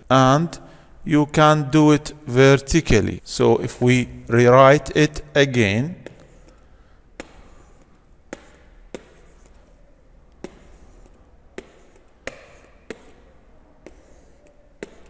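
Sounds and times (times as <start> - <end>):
stylus tapping on tablet: 6.0 - 15.0.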